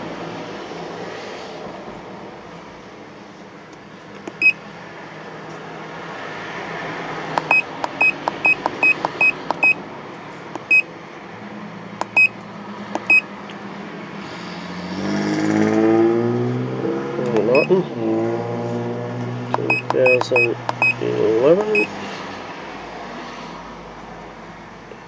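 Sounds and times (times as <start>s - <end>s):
key-press beeps: 4.3s - 4.6s, 7.4s - 9.8s, 10.6s - 10.9s, 12.0s - 12.4s, 13.0s - 13.3s, 17.4s - 17.7s, 19.6s - 21.0s, 21.7s - 21.9s.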